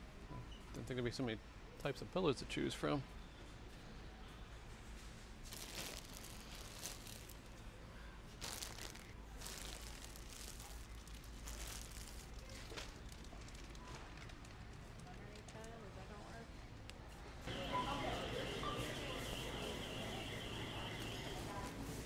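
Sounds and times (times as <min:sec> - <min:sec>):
faint low hum: 0:03.2 - 0:22.0
plastic wrapping crinkling: 0:05.4 - 0:07.6, 0:08.3 - 0:15.7.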